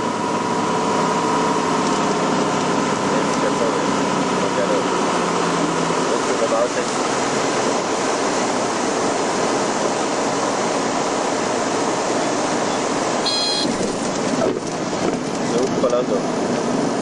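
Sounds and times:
aircraft cabin engine noise: 0:00.0 - 0:17.0
high beep: 0:13.2 - 0:13.8.

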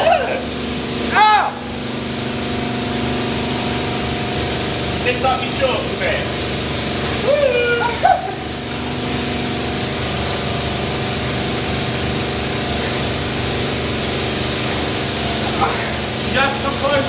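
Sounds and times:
high-pressure spray hissing: 0:00.0 - 0:17.0
pressure washer pump humming: 0:00.0 - 0:17.0
person crying out: 0:01.1 - 0:01.6, 0:07.2 - 0:08.5.

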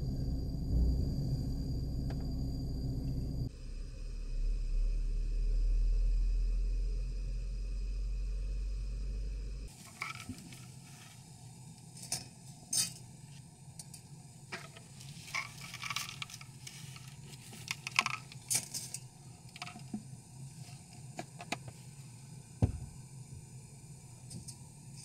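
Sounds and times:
gas stove hum: 0:00.0 - 0:17.4, 0:18.2 - 0:25.0
dry spaghetti rattling: 0:15.1 - 0:19.8.

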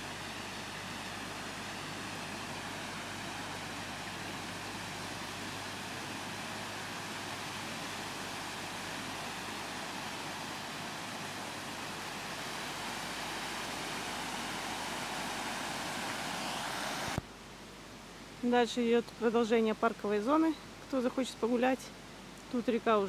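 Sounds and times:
waterfall over rocks: 0:00.0 - 0:17.2.

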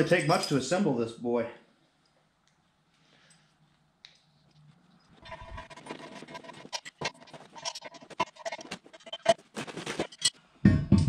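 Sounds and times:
steel parts clinking: 0:00.0 - 0:00.7, 0:05.2 - 0:10.4.

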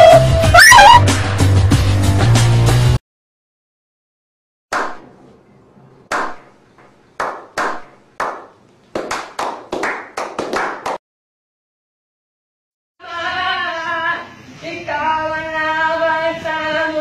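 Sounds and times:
men slow clapping: 0:07.2 - 0:11.0.

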